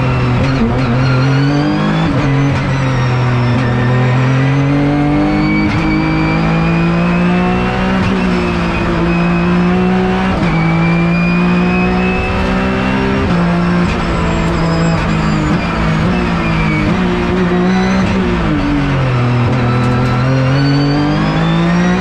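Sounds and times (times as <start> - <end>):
race car engine at full throttle: 0.0 - 22.0.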